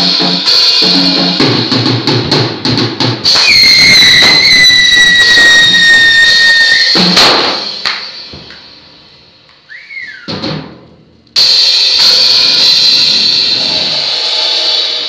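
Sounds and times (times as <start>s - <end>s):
loud burst of sound: 3.3s - 7.7s.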